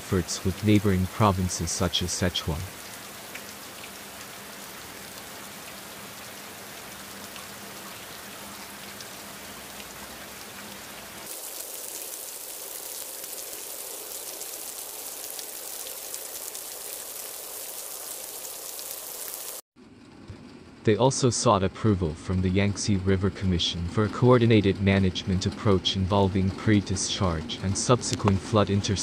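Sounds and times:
rain hissing on water: 0:00.0 - 0:19.6
raindrops pattering: 0:00.0 - 0:19.6.

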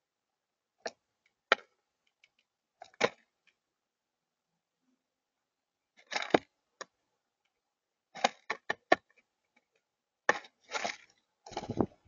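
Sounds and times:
bird clicking and scraping on feeder: 0:10.7 - 0:12.0.

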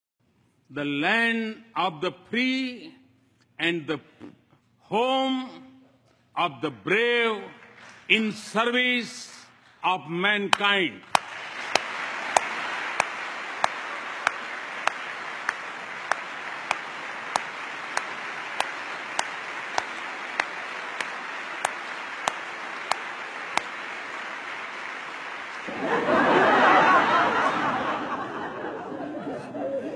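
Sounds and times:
close sharp handclaps: 0:07.5 - 0:08.7, 0:10.5 - 0:25.8
audience applauding: 0:10.5 - 0:28.8
crowd noise: 0:11.1 - 0:29.9.

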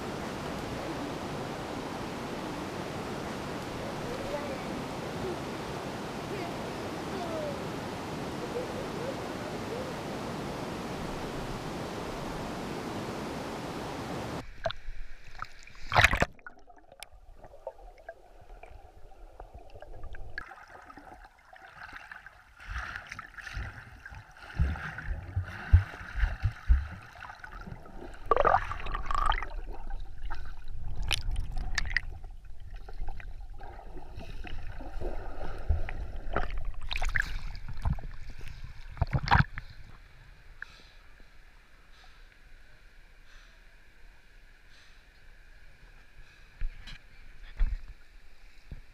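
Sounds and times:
river water rushing: 0:00.0 - 0:14.6
underwater gurgles: 0:14.4 - 0:40.1
water splashing: 0:14.4 - 0:40.1.

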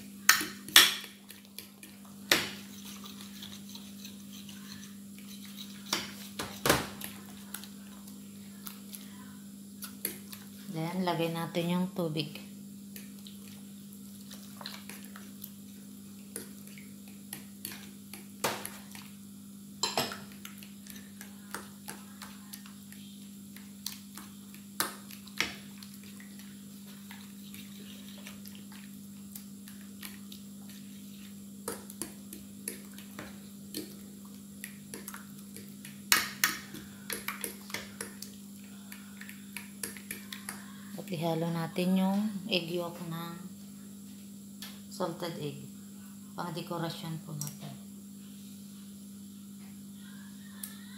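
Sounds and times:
steady low hum: 0:00.0 - 0:50.9
spoon stirring wet minced meat: 0:12.9 - 0:19.2, 0:20.2 - 0:41.2.

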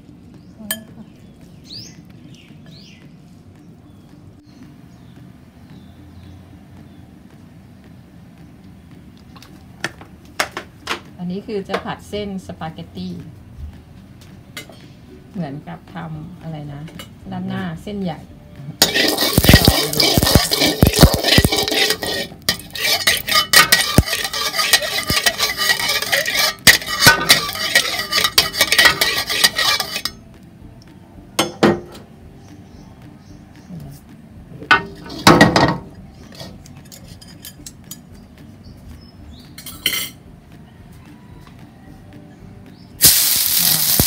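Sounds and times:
metal spatula scraping a wok: 0:18.8 - 0:30.2, 0:36.2 - 0:37.6, 0:43.0 - 0:44.0.

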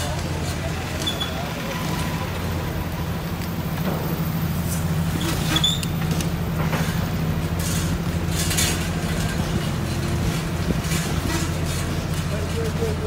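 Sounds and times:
short high squeak: 0:05.1 - 0:05.9.

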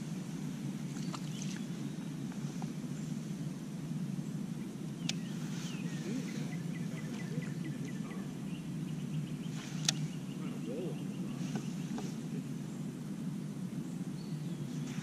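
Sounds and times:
low outdoor rumble: 0:00.0 - 0:15.0
bird chirping: 0:05.0 - 0:12.8.

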